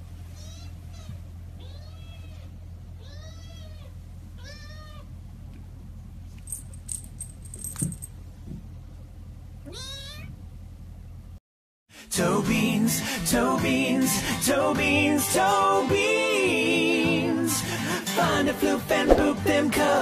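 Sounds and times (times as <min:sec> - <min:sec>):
low steady hum: 0:00.0 - 0:11.4
kitten meowing: 0:00.4 - 0:05.1, 0:09.7 - 0:10.3
faint clicks and jingles: 0:06.4 - 0:08.2.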